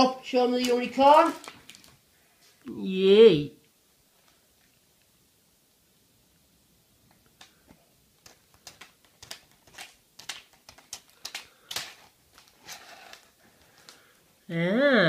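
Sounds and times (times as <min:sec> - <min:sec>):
plastic packet crinkling: 0:00.6 - 0:02.0, 0:08.2 - 0:14.1.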